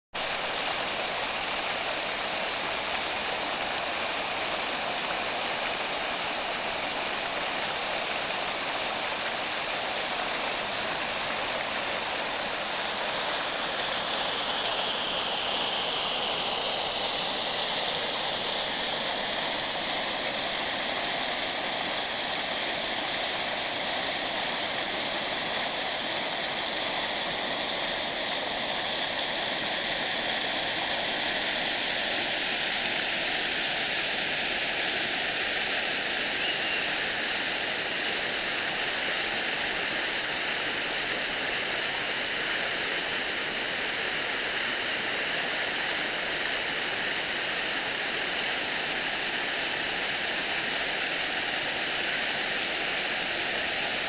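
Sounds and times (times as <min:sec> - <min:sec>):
stream rushing over rocks: 0:00.2 - 0:54.0.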